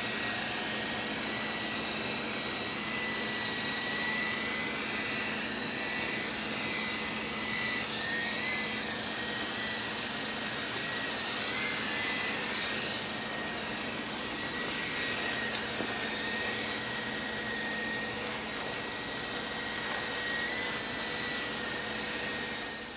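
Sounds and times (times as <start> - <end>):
toy helicopter motor whine: 0.0 - 22.9.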